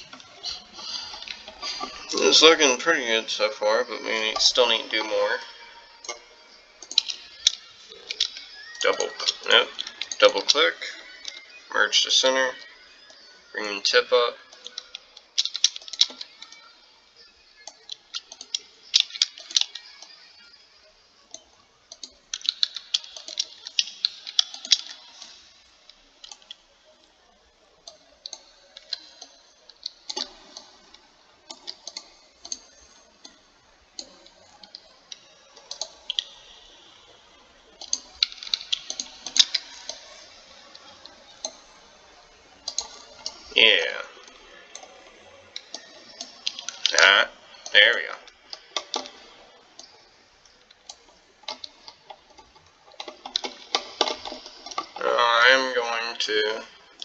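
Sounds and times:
keyboard and mouse clicking: 4.3 - 11.6, 14.5 - 20.6, 21.2 - 26.6, 27.8 - 36.9, 37.8 - 41.8, 42.6 - 43.5, 44.2 - 49.2, 49.8 - 55.0.

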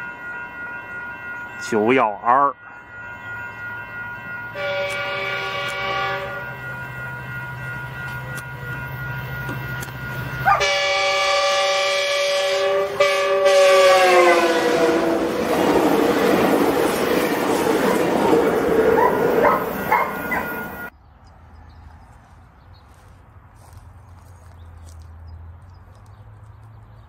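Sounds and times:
passing train rushing: 0.0 - 22.0
locomotive air horn blasts: 4.5 - 6.6, 10.4 - 15.5.

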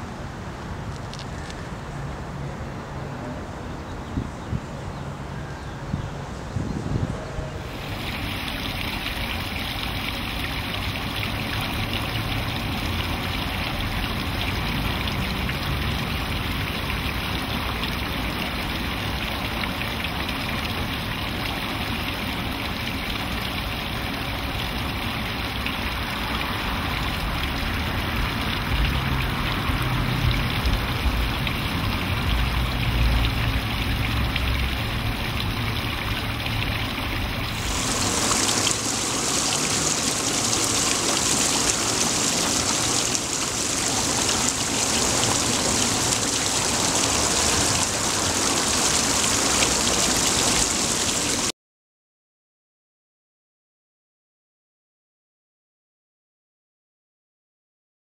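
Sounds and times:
fountain water splashing: 7.6 - 51.5.

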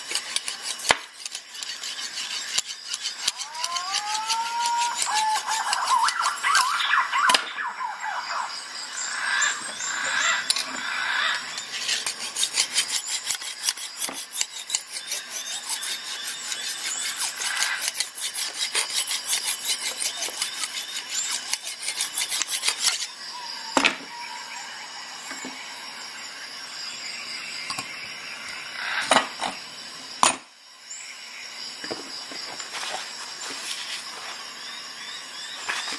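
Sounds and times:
sharpening hone scraping knife edge: 0.0 - 6.6, 11.4 - 23.1.

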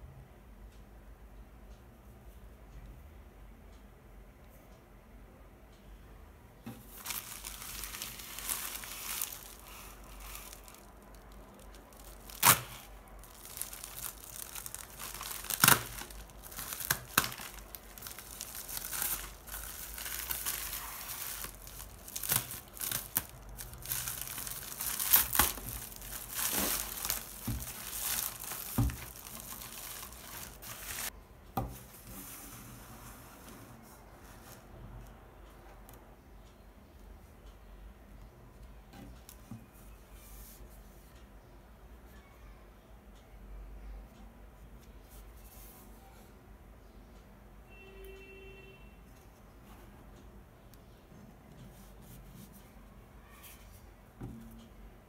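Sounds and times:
plastic bag crinkling: 6.8 - 31.1.

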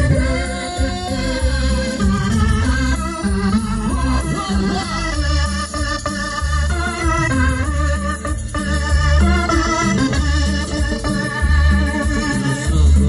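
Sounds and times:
organ melody with vibrato: 0.0 - 13.0
stepping bass line: 0.0 - 13.0.

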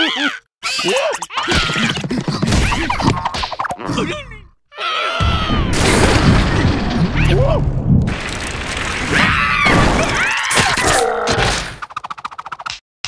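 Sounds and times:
cartoon character gibberish cries: 0.0 - 2.1, 4.0 - 5.7.

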